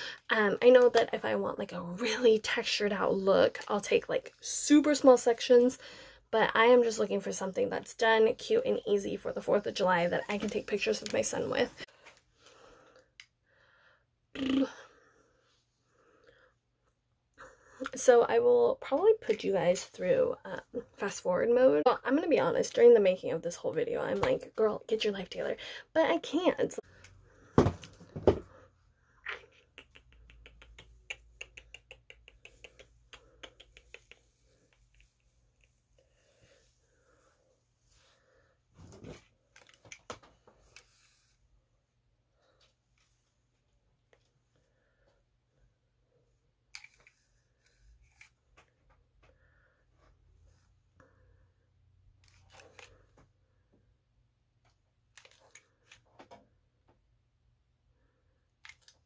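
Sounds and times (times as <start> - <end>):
crackling clicks of fingers in hair: 29.3 - 35.7.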